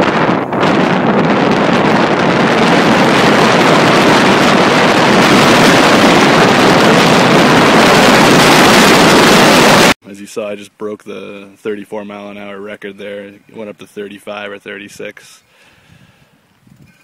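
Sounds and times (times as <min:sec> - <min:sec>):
wind buffeting microphone: 0:00.0 - 0:10.0, 0:15.8 - 0:17.0.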